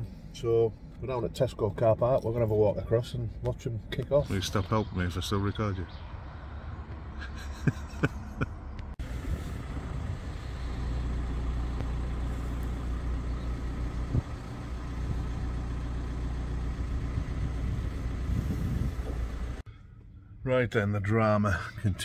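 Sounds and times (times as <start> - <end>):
diesel engine idling: 8.9 - 19.9.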